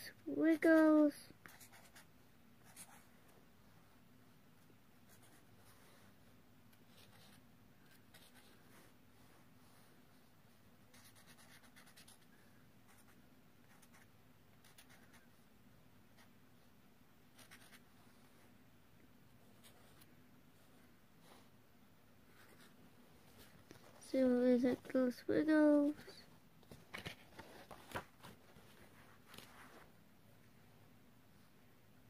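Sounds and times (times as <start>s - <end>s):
marker scratching on paper: 1.4s - 3.0s, 6.9s - 8.6s, 10.9s - 12.3s, 12.9s - 15.3s, 17.3s - 17.8s.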